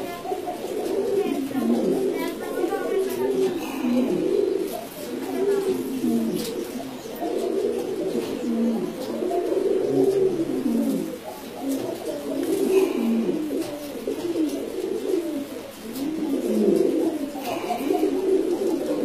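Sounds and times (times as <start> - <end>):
pigeons cooing: 0.0 - 19.0.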